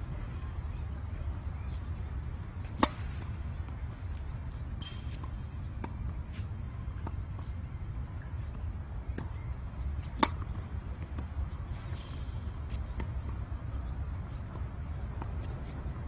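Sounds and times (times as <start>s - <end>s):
tennis ball impact pop: 10.0s - 10.6s.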